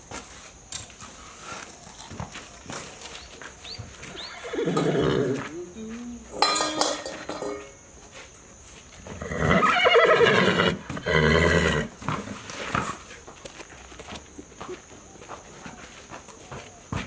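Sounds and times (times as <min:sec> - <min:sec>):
horse neighing: 0:04.1 - 0:05.4, 0:09.2 - 0:12.0.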